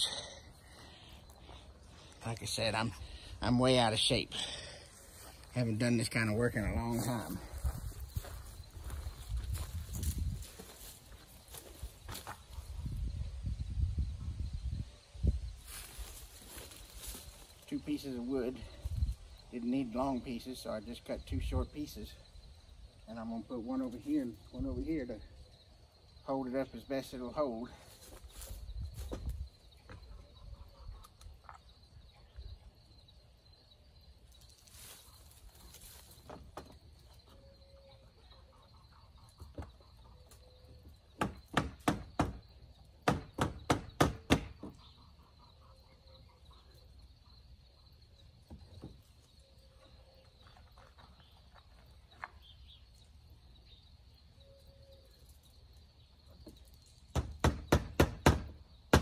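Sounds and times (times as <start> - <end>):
hammer striking nails into wood: 41.2 - 42.4, 43.0 - 44.7, 57.1 - 59.0.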